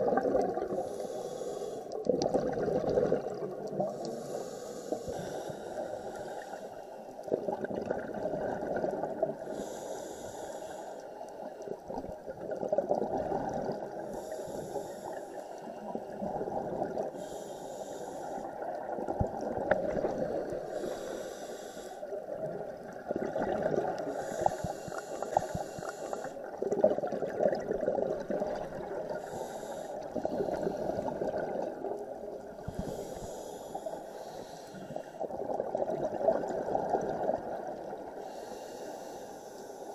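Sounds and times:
muffled bubbling exhales: 0.0 - 5.4, 22.4 - 33.5
regulator hissing inhale: 0.7 - 2.1, 3.9 - 7.2, 9.4 - 11.7, 14.0 - 16.2, 17.0 - 18.7, 20.2 - 22.2, 24.0 - 26.6, 29.1 - 31.2, 32.6 - 35.3, 38.2 - 39.9.

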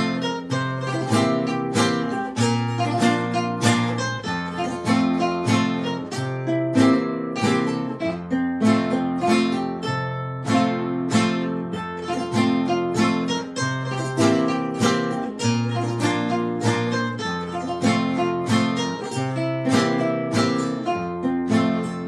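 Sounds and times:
picked guitar melody: 0.0 - 22.0
strummed guitar chords: 0.0 - 22.0.

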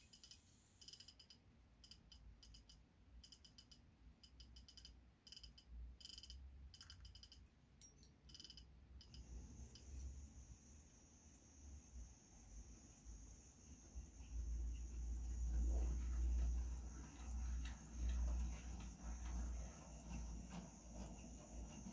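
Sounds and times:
thin high whine: 9.0 - 21.9
model train clicking on track: 16.1 - 21.9.

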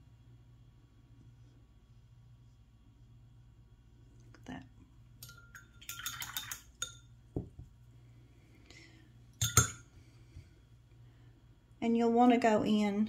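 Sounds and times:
light clinks and taps of objects: 5.2 - 7.7.

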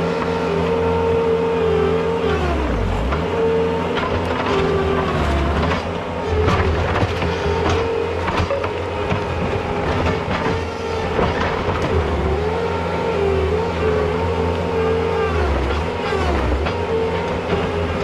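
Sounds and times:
diesel engine running under load: 0.0 - 18.0
hydraulic whine: 0.0 - 18.0.

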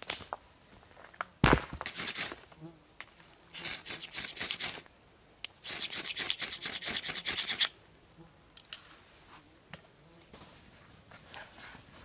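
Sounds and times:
short scratching strokes: 5.6 - 7.7.

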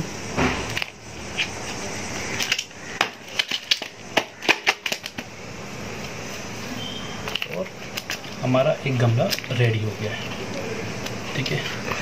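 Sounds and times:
hands patting potting mix: 0.0 - 12.0
sharp clicks and crackles: 0.6 - 5.3, 7.2 - 8.5, 9.2 - 12.0.

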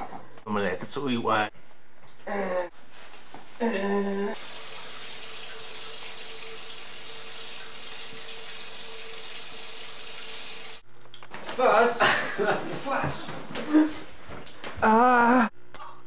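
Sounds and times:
water running from tap into sink: 4.4 - 10.8.

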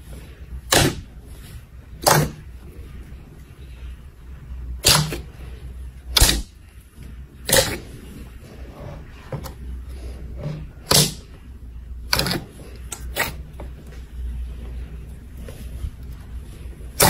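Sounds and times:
hand squishing slime: 12.1 - 13.5.

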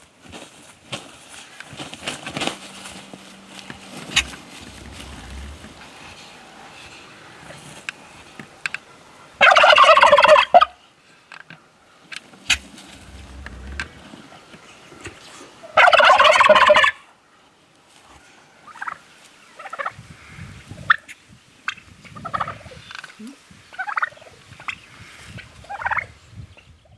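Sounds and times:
turkey gobbling: 3.4 - 6.0, 8.8 - 10.8, 12.4 - 14.0, 15.6 - 17.0, 18.7 - 19.0, 19.6 - 20.0, 21.7 - 22.7, 23.7 - 24.9, 25.6 - 26.1
soft turkey calls: 3.4 - 10.9, 11.6 - 17.0, 18.7 - 26.1.

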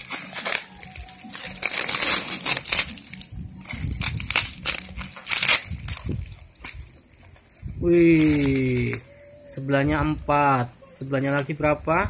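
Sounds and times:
packing tape crackling and crinkling: 0.0 - 9.2.

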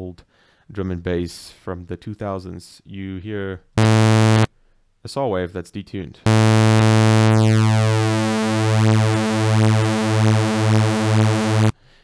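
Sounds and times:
buzzy synth bass note pulsing: 3.8 - 4.5, 6.3 - 11.7.

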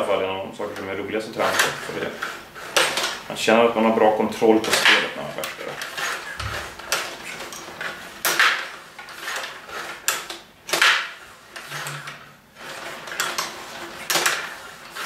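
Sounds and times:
control rods sliding: 0.0 - 15.0
table hockey plastic clacks: 0.7 - 3.3, 4.3 - 15.0.

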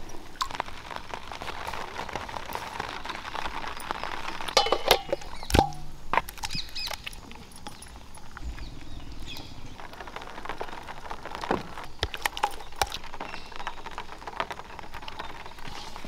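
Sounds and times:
steel plate clanking against bowl: 4.6 - 6.0.

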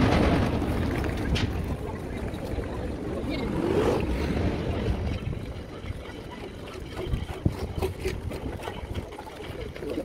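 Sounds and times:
traffic rumble: 0.0 - 6.6.

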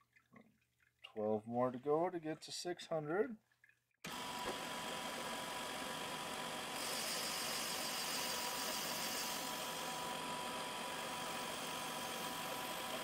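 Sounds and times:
grinder running: 4.1 - 13.0
high grinding hiss: 6.7 - 10.0.

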